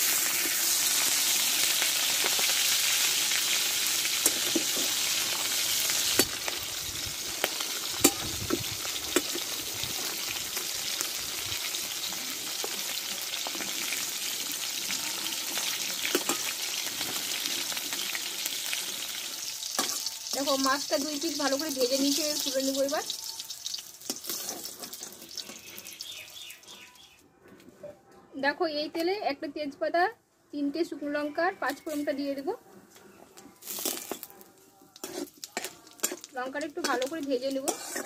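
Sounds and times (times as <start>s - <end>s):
fish sizzling in hot oil: 0.0s - 26.6s, 33.6s - 34.4s, 35.0s - 38.0s.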